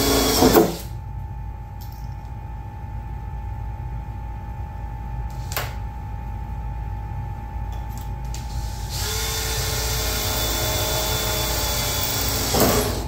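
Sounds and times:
cordless drill drilling sheet metal: 0.0 - 0.8, 8.6 - 13.0.

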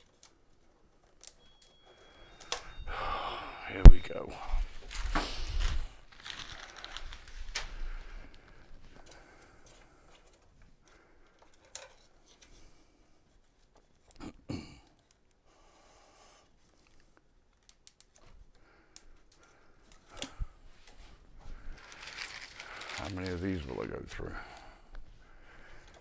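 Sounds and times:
cable tie clicks and rustles: 0.0 - 2.7, 4.8 - 12.6, 14.8 - 15.4, 16.6 - 25.1, 25.7 - 26.0.

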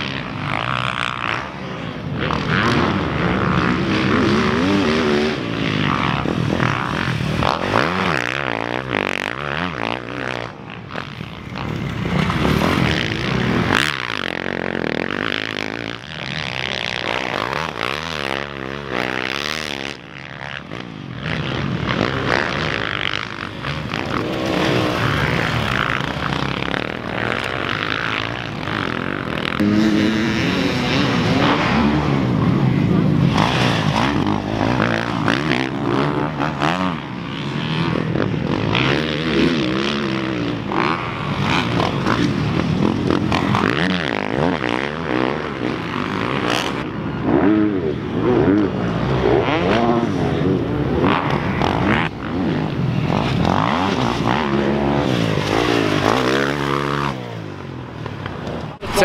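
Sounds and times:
motocross bike engines revving: 0.0 - 59.0.

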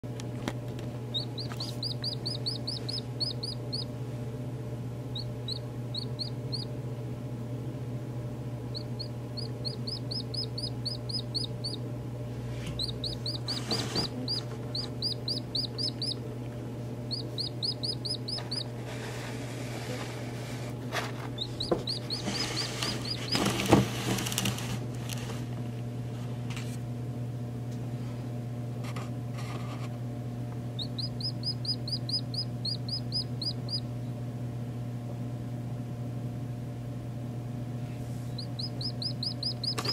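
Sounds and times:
steady low hum: 0.0 - 39.9
chick peeping: 1.1 - 3.9, 5.1 - 6.7, 8.7 - 11.8, 12.7 - 16.4, 17.0 - 18.9, 21.4 - 23.7, 30.8 - 34.1, 38.3 - 39.9
rustling: 22.2 - 25.4.

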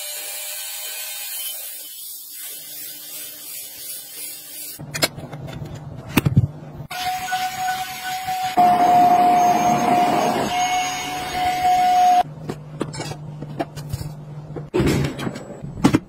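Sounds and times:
vacuum cleaner motor whining: 6.9 - 12.2.

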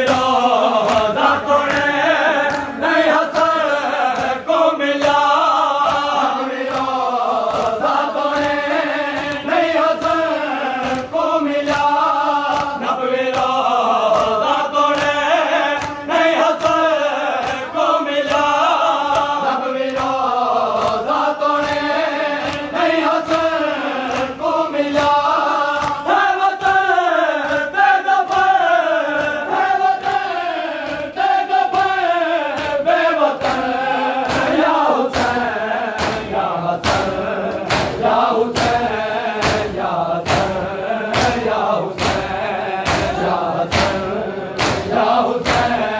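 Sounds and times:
crowd of men chanting: 0.0 - 45.9
hands slapping bare chests: 0.0 - 45.9.

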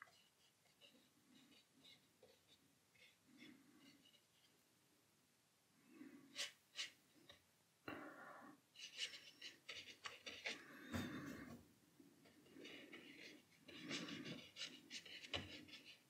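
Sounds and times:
brush scratching on paper: 0.0 - 4.6, 6.2 - 7.4, 8.8 - 11.4, 12.2 - 16.0
brush working wet paint: 0.0 - 4.7, 8.8 - 11.6, 12.2 - 16.0.

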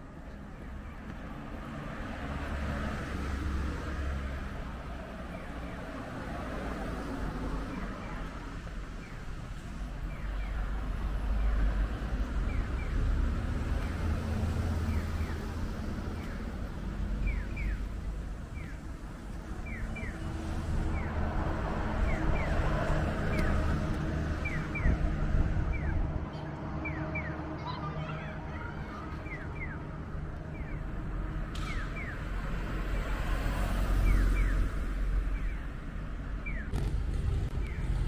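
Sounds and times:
traffic rumble: 0.0 - 38.0
wind: 0.0 - 38.0
crossing signal chirping: 14.8 - 15.5, 17.2 - 17.9, 18.5 - 18.8, 19.6 - 20.2, 22.0 - 23.7, 24.4 - 25.1, 26.8 - 27.4, 29.2 - 29.9, 30.5 - 30.9, 31.6 - 32.4, 33.9 - 36.9, 37.5 - 38.0.

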